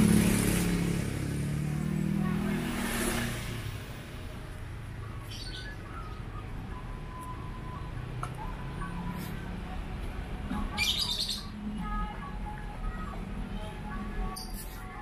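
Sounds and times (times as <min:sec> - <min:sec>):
motorcycle engine: 0:00.0 - 0:05.0
bird chirps: 0:05.0 - 0:07.8.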